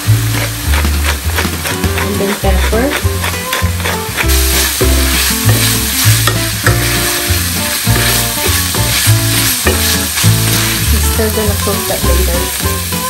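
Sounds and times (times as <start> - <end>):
background music with bass line: 0.0 - 13.0
meat sizzling in a frying pan: 0.0 - 13.0.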